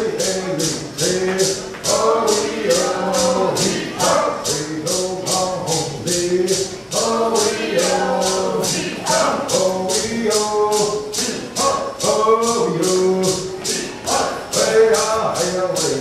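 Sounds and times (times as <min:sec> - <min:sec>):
rattle shaken in steady beat: 0:00.0 - 0:16.0
voices chanting together: 0:00.0 - 0:16.0.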